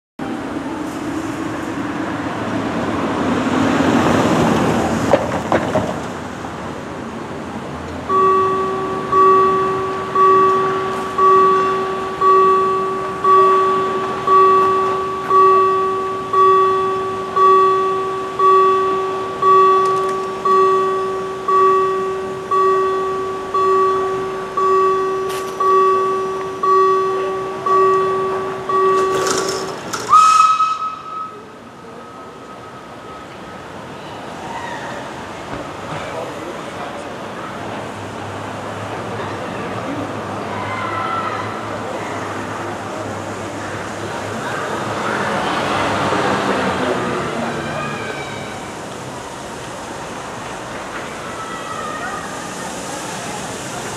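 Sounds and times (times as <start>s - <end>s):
level crossing warning bell: 7.9s - 34.0s
high whistle note: 8.1s - 33.2s.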